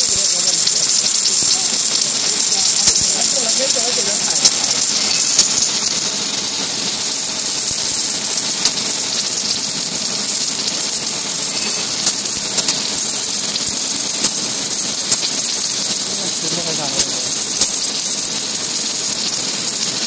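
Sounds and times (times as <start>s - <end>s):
sharp welding crackles: 0.0s - 20.0s
welding hiss: 0.0s - 20.0s.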